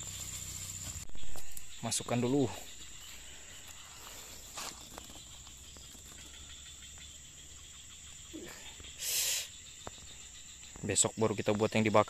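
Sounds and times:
rustles and light clicks of fruit: 0.0 - 1.8, 2.7 - 6.4
insects chirring: 0.0 - 12.0.

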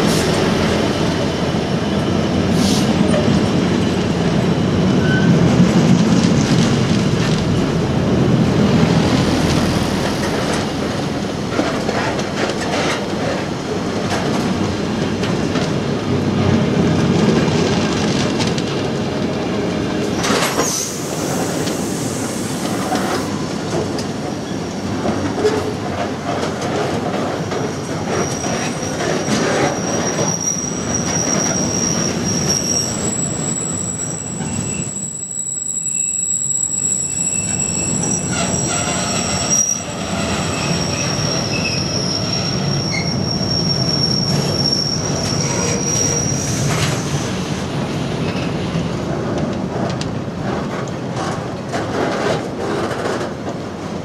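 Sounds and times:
freight train wheels rumbling: 0.0 - 54.0
high wheel squeal: 4.5 - 5.4, 27.5 - 47.1.

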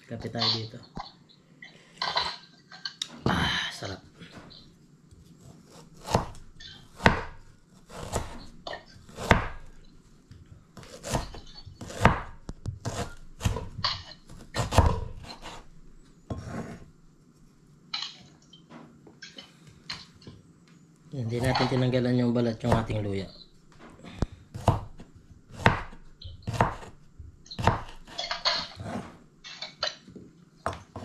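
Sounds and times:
knife chopping on wooden board: 5.4 - 9.8, 10.8 - 15.6, 16.3 - 16.8, 22.6 - 23.1, 24.5 - 29.2.

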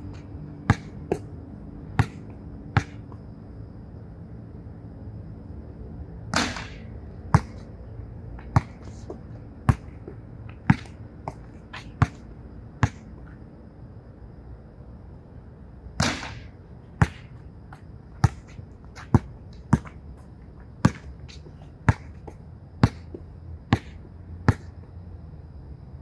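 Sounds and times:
basketball bouncing on court: 0.6 - 1.3, 1.9 - 3.2, 6.3 - 7.7, 8.4 - 13.1, 16.0 - 24.7
basketball hitting backboard: 6.3 - 6.8, 16.0 - 17.3, 23.8 - 24.7.

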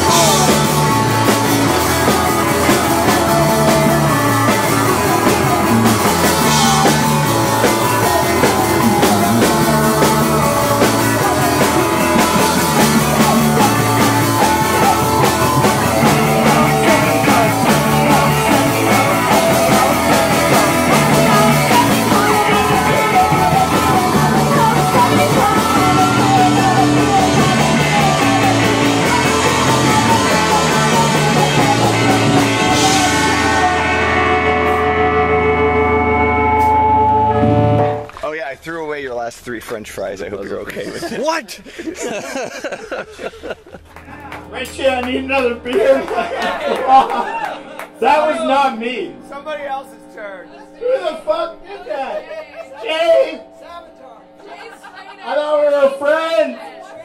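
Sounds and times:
woman singing into a microphone: 0.0 - 34.4
punk rock band playing live: 0.0 - 38.2, 43.9 - 48.6.

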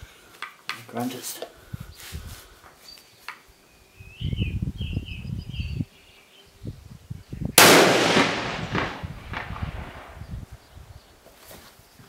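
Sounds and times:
rifle shot with echo: 7.6 - 10.3.

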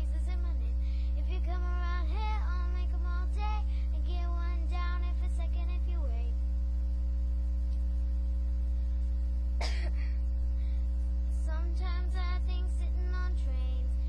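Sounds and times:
girl singing: 0.0 - 6.4, 11.3 - 14.0
loud steady low hum: 0.0 - 14.0
girl coughing: 9.6 - 10.2.

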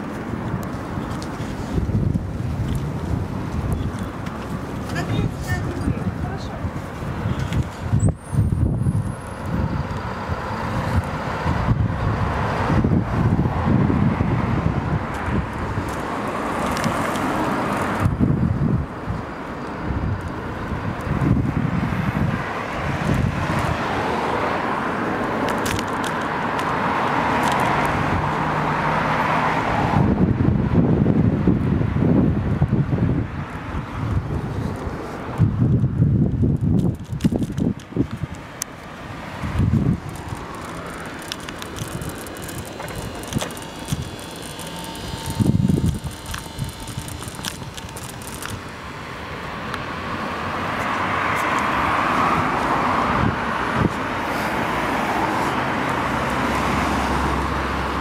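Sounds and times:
passing car traffic: 0.0 - 58.0
wind buffeting microphone: 0.0 - 58.0
bicycle frame rattling clicks: 25.4 - 26.7, 27.4 - 27.9, 35.8 - 48.8
bicycle tyres rolling hiss: 53.9 - 57.4.

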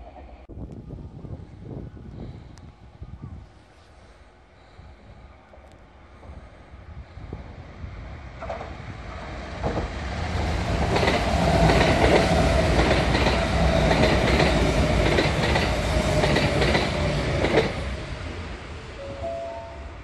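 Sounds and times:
electric train passing: 5.9 - 20.0
steady high tone: 18.9 - 20.0.

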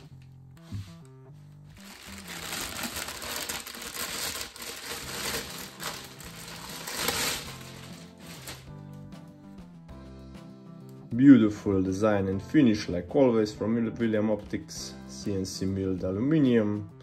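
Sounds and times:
quiet background music: 0.0 - 17.0
plastic wrapping crinkling: 1.8 - 8.8.

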